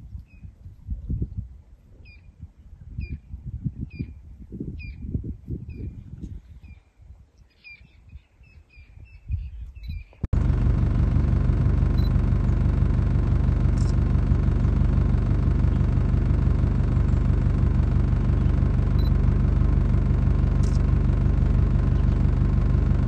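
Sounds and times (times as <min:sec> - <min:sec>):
bird chirping: 0:06.6 - 0:10.2
vehicle engine running: 0:10.3 - 0:23.0
low rumble: 0:10.4 - 0:23.0.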